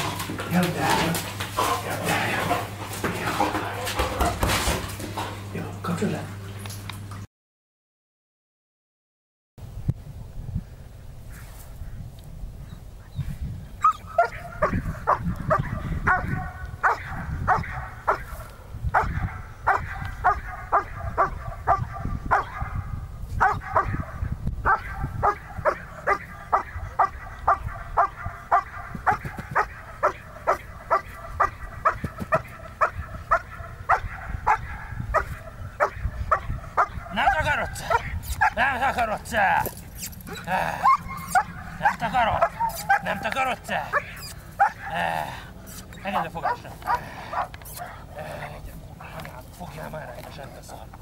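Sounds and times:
dog barking aggressively: 13.8 - 49.4.

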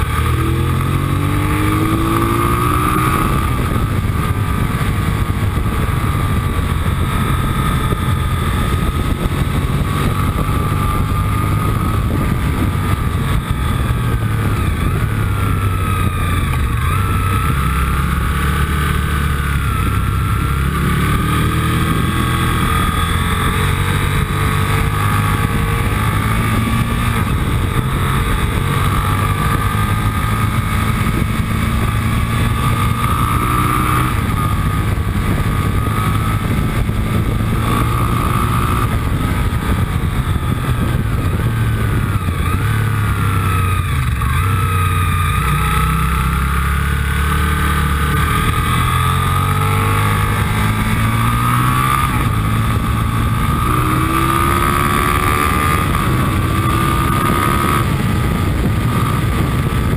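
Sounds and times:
motorcycle engine running hard: 0.0 - 59.9.

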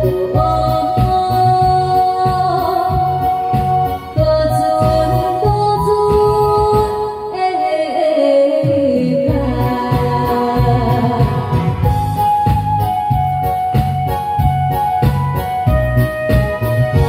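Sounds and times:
woman singing: 0.0 - 12.0
electronic backing track: 0.0 - 17.0.

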